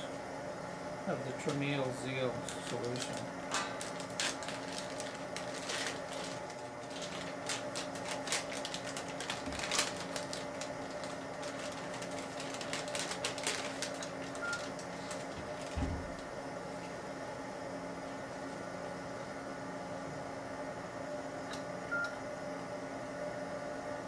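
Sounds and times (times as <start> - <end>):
low electrical hum: 0.0 - 24.0
wrapper crinkling and tearing: 2.5 - 16.2.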